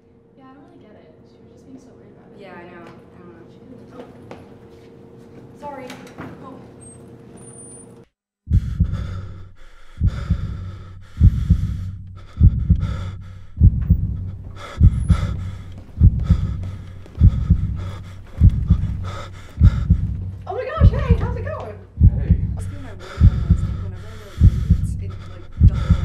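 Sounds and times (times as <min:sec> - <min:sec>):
heavy heartbeat thumps: 0:08.5 - 0:26.0
breathing: 0:08.6 - 0:20.5, 0:22.6 - 0:26.0.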